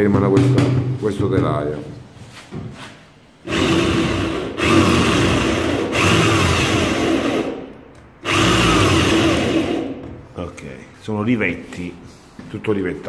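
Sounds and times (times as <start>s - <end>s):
electric drill drilling metal: 3.4s - 10.0s.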